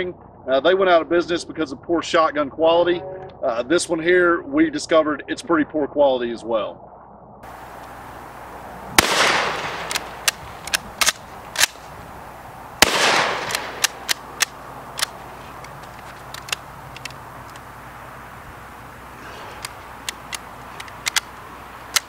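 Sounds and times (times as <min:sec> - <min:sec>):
shotgun shots echoing: 0:07.5 - 0:12.2, 0:12.8 - 0:15.6
pump action clacking: 0:12.8 - 0:17.6.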